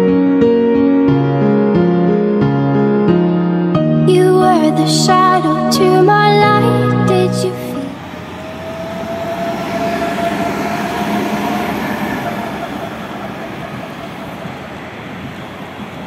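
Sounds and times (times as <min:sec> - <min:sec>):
high tram whine: 0:04.3 - 0:16.0
tram wheels on rails: 0:04.6 - 0:16.0.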